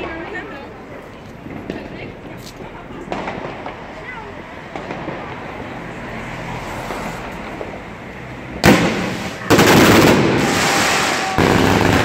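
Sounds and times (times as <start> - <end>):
fireworks barrage: 1.4 - 5.6, 8.6 - 12.0.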